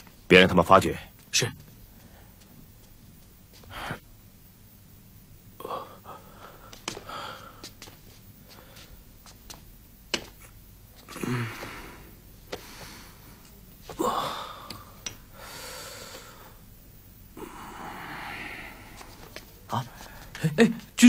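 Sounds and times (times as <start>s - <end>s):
man gasping in pain: 13.9s - 15.7s.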